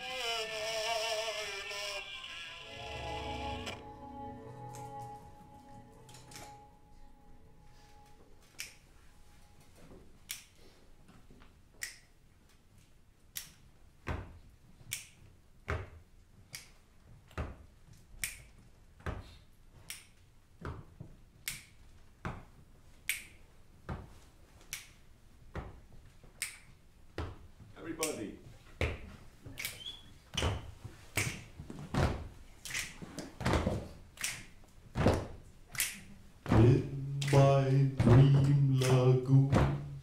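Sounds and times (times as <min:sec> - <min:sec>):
finger snaps: 0:08.6 - 0:08.8, 0:10.3 - 0:10.6, 0:11.8 - 0:12.1, 0:13.3 - 0:13.6, 0:14.9 - 0:15.2, 0:16.5 - 0:16.8, 0:18.2 - 0:18.5, 0:19.8 - 0:20.2, 0:21.4 - 0:21.8, 0:23.1 - 0:23.4, 0:24.6 - 0:25.0, 0:26.4 - 0:26.7, 0:29.6 - 0:30.0, 0:34.2 - 0:34.5, 0:35.7 - 0:36.1, 0:37.2 - 0:37.5
low thumps: 0:36.5 - 0:40.0.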